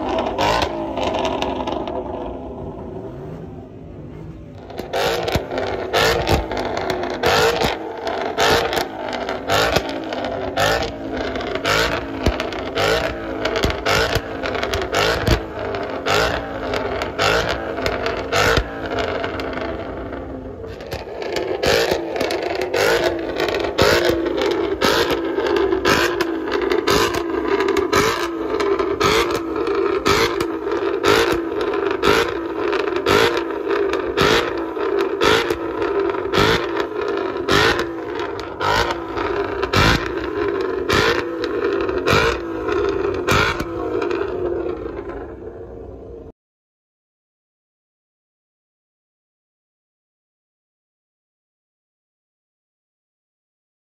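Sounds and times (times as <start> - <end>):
exhaust pops: 0.0 - 45.7
car engine revving: 0.0 - 46.2.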